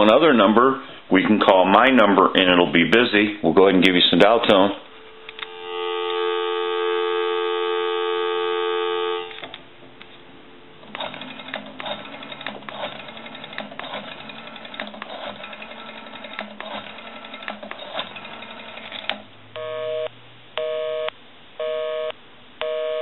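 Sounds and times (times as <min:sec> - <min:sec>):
telephone dial tone: 0:05.1 - 0:09.6, 0:18.2 - 0:23.0.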